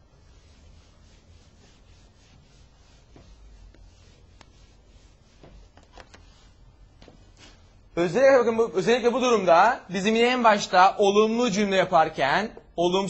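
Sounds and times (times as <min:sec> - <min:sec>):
writing scratching on a board: 0:00.1 - 0:07.5.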